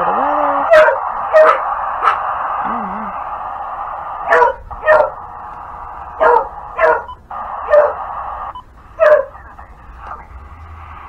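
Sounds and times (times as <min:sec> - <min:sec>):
radio static hiss: 0:00.0 - 0:11.0
dog barking: 0:00.7 - 0:02.2, 0:04.3 - 0:05.2, 0:06.2 - 0:08.0, 0:09.0 - 0:09.3.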